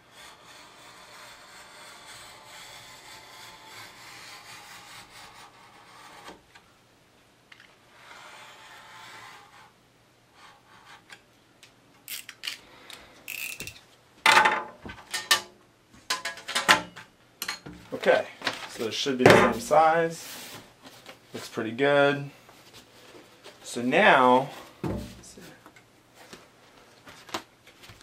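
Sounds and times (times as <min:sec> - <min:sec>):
knife scraping through foam board: 0:00.0 - 0:06.4, 0:07.8 - 0:09.8.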